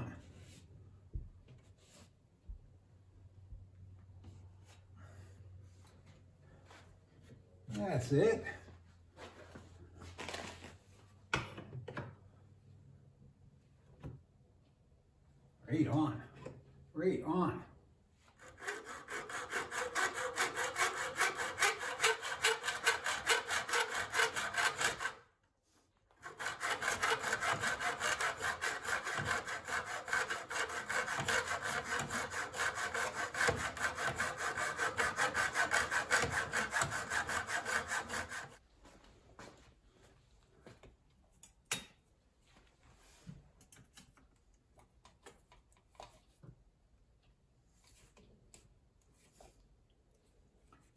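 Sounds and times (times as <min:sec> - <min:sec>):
hacksaw cutting metal: 0:18.4 - 0:25.2, 0:26.2 - 0:38.6.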